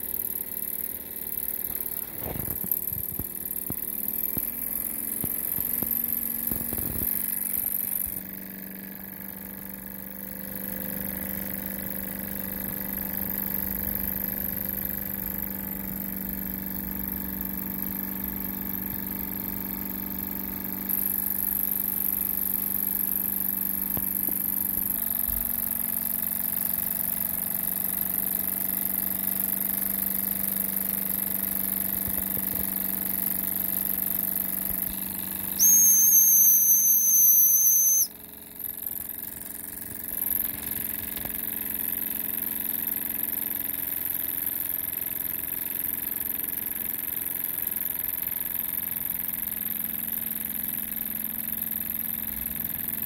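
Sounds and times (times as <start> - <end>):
toy steam engine running: 0.0 - 53.0
high-pitched steam whistle: 35.6 - 38.1.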